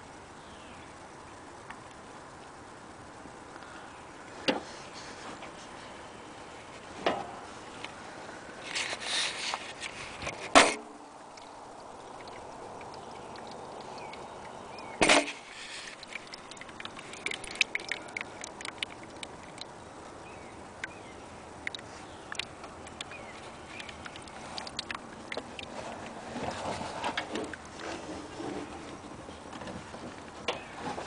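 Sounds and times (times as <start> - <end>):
rustle: 0.0 - 31.0
oil dripping into bucket: 9.8 - 30.7.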